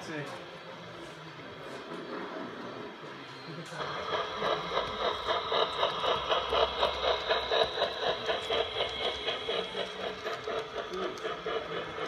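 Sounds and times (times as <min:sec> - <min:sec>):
model steam locomotive running: 0:00.0 - 0:12.0
rhythmic beat: 0:03.8 - 0:12.0.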